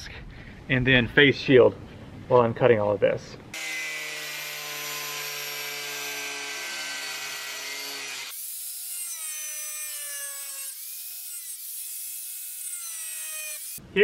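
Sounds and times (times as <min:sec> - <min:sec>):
angle grinder cutting board: 0:03.6 - 0:13.8.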